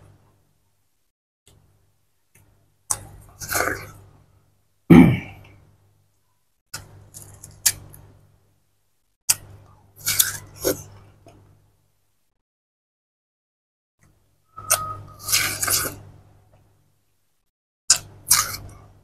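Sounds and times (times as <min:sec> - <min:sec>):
watermelon crunching bites: 0:02.9 - 0:04.0, 0:06.8 - 0:08.0, 0:09.3 - 0:11.0, 0:14.6 - 0:16.1, 0:17.9 - 0:18.8.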